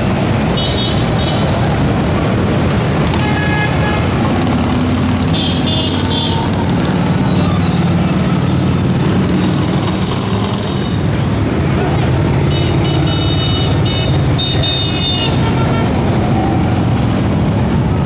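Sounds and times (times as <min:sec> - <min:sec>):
motorcycles riding past: 0:00.0 - 0:18.0.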